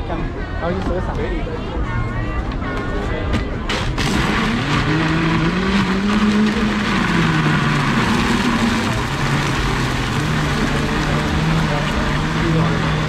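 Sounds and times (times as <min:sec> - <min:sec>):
blender motor churning ice: 0:03.7 - 0:13.0.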